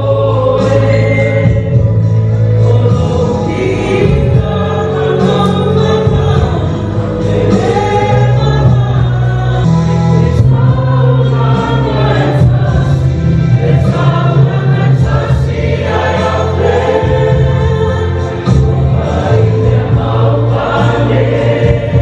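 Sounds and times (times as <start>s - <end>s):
accompaniment with strong bass: 0.0s - 22.0s
choir singing: 2.5s - 22.0s.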